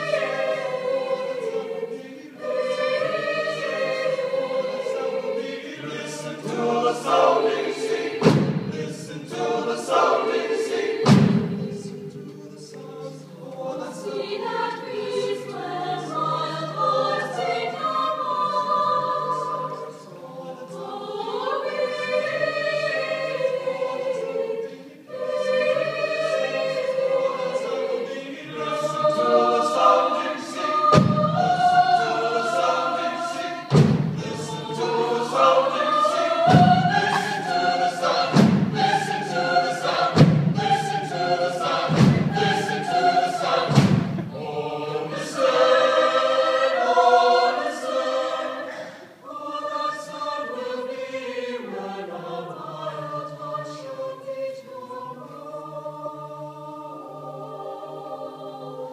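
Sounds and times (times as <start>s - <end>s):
mixed choir singing: 0.0s - 58.9s
deep thuds: 8.2s - 8.9s, 11.0s - 11.8s, 30.9s - 31.7s, 33.7s - 34.6s, 38.2s - 39.1s, 40.0s - 40.9s, 41.7s - 42.8s, 43.6s - 44.5s.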